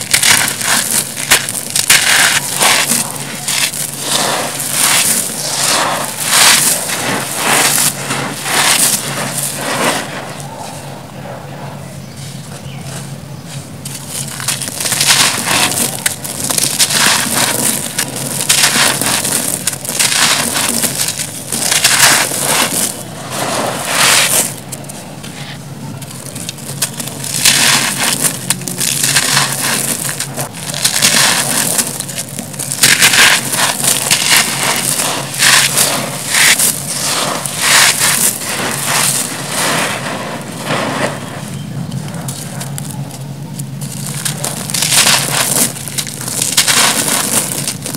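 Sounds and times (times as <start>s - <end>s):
crumbs pouring onto a heap: 0.0s - 10.2s, 13.8s - 24.9s, 26.0s - 47.9s
concrete crunching by hand: 0.0s - 10.7s, 12.5s - 47.9s.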